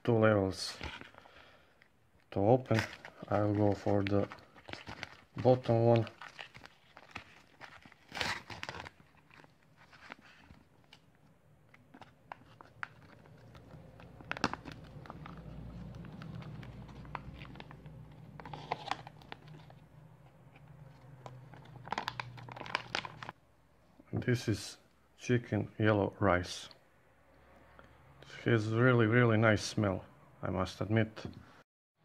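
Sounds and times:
foil pouch tearing and crinkling: 0:02.7 - 0:11.0, 0:12.4 - 0:19.8, 0:21.2 - 0:23.4.

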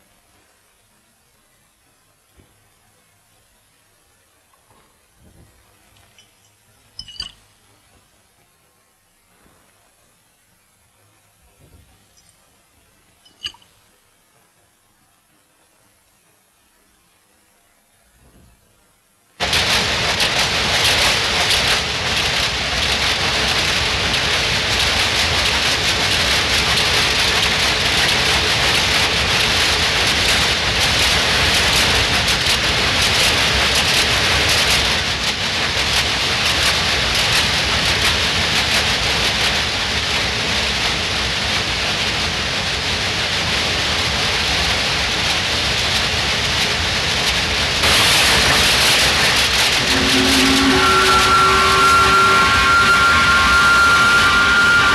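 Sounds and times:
textile machinery clattering: 0:19.4 - 0:54.9.

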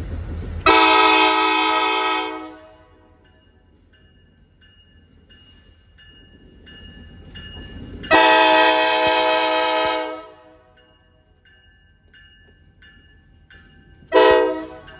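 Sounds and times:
train rumble: 0:00.0 - 0:14.9
train horn blast: 0:00.6 - 0:03.1, 0:08.1 - 0:10.7, 0:14.1 - 0:14.9.

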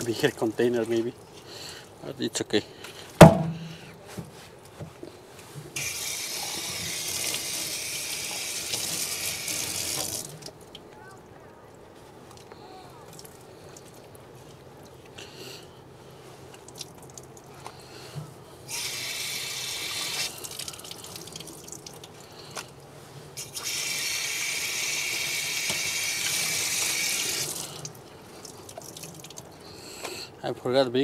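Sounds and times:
faucet water running and splashing: 0:05.8 - 0:10.6, 0:18.7 - 0:22.3, 0:23.4 - 0:29.6
water drips: 0:05.8 - 0:11.0, 0:12.3 - 0:15.2, 0:16.5 - 0:18.1, 0:18.7 - 0:30.1.

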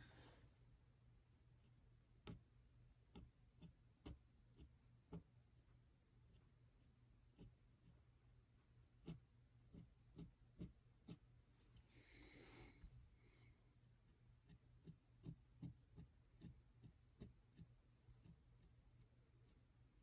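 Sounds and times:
pen nib scratching paper: 0:03.1 - 0:05.3, 0:06.2 - 0:08.1, 0:09.0 - 0:11.4, 0:13.8 - 0:19.7.

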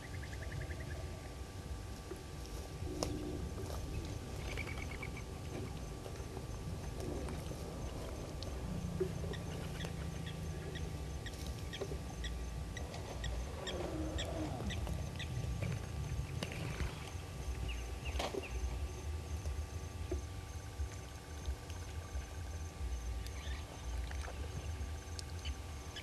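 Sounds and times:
low rumble: 0:00.0 - 0:25.8
birds chirping and calling: 0:03.0 - 0:05.8, 0:07.0 - 0:18.6.

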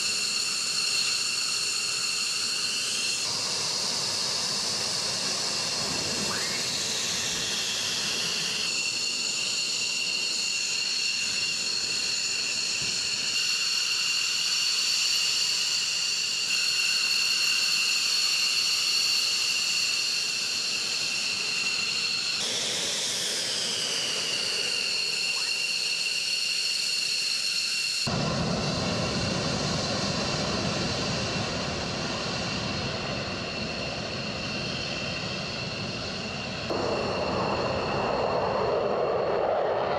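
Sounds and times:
jet engines whining: 0:00.0 - 0:39.9
deep jet rumble: 0:28.1 - 0:39.9.

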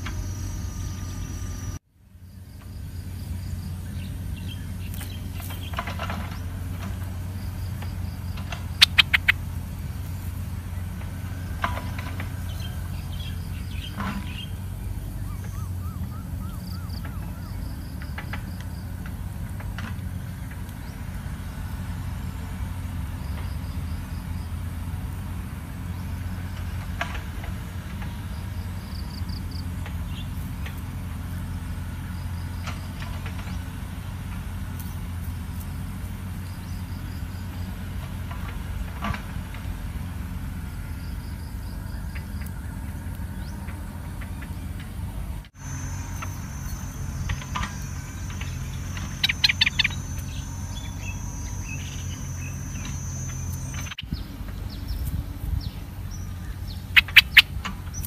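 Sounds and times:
bird chirps: 0:00.0 - 0:01.8, 0:03.5 - 0:06.6, 0:07.4 - 0:18.9, 0:45.6 - 0:58.0
insect trills: 0:00.0 - 0:38.3, 0:39.6 - 0:45.0, 0:45.6 - 0:58.0
distant road traffic rumble: 0:00.0 - 0:58.0.

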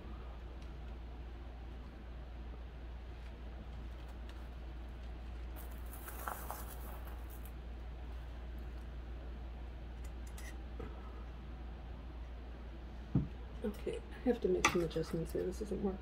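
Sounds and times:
steady low hum: 0:00.0 - 0:16.0
crackly scratching: 0:03.0 - 0:07.6
wire rustling and scraping: 0:03.0 - 0:08.9.

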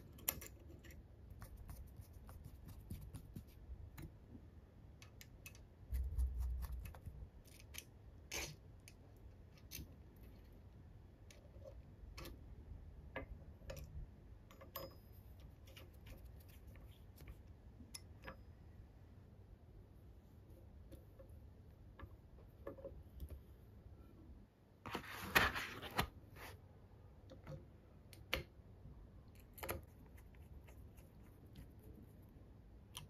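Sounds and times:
metal parts clicking and tapping: 0:00.0 - 0:01.0, 0:05.0 - 0:05.7.

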